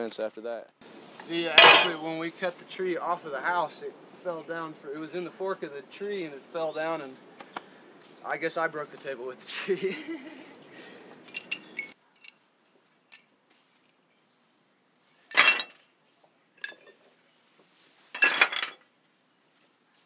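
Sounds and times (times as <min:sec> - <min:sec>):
glass shards clinking: 0:01.4 - 0:02.0, 0:11.2 - 0:12.4, 0:15.3 - 0:15.8, 0:16.6 - 0:17.1, 0:18.1 - 0:18.8.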